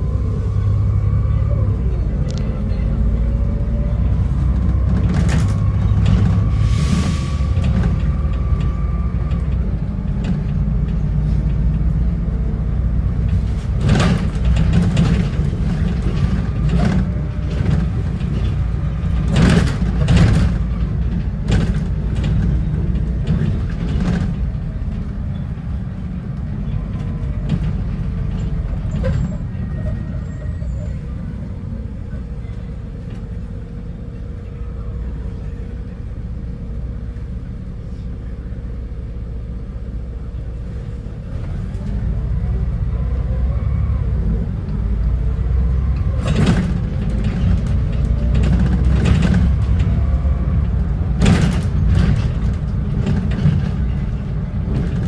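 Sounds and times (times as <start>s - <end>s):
bus engine and road rumble: 0.0s - 55.0s
bodywork rattles and knocks: 13.1s - 29.4s, 45.7s - 55.0s.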